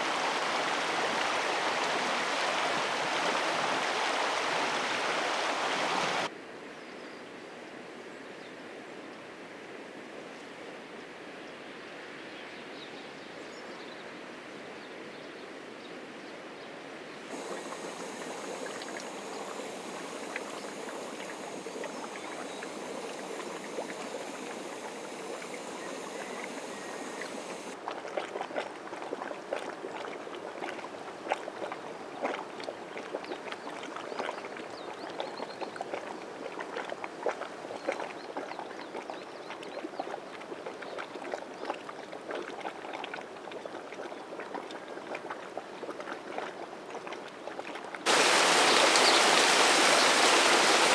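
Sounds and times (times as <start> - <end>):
hot spring water bubbling: 0.0 - 6.3, 17.3 - 50.9
fumarole hissing with pops: 17.3 - 27.8, 48.1 - 50.9
steam hissing: 17.3 - 27.8, 48.1 - 50.9
steam venting rush: 17.3 - 27.8, 48.1 - 50.9.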